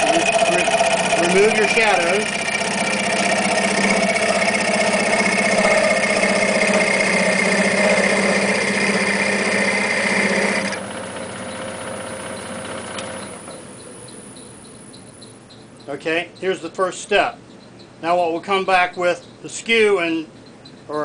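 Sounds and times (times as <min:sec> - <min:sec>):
tool cutting wood on lathe: 0:00.0 - 0:13.8
wood lathe spinning: 0:00.0 - 0:14.6.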